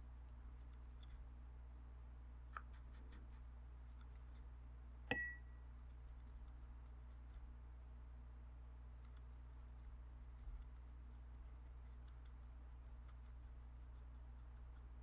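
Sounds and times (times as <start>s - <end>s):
paintbrush ticks and scrapes: 0.0s - 1.3s, 2.5s - 4.6s, 5.6s - 7.8s, 8.8s - 15.0s
steady low hum: 0.0s - 15.0s
sharp ringing clink: 5.1s - 5.6s.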